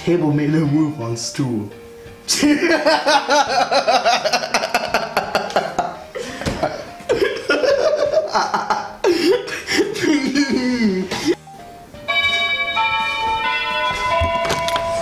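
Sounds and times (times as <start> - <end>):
man laughing loudly: 2.3 - 11.4.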